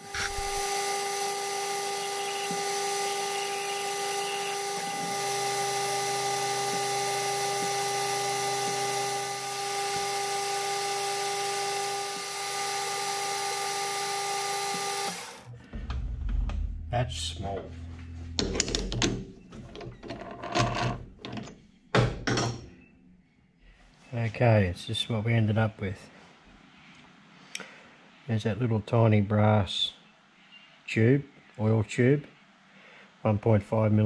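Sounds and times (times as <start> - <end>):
metal lathe motor whine: 0.0 - 15.5.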